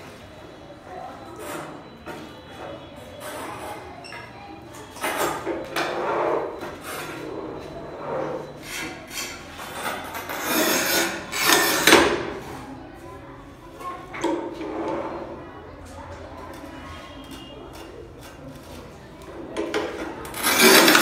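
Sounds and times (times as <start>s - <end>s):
hand tool scraping tile and cement: 5.0s - 12.0s, 17.3s - 18.9s, 19.6s - 21.0s.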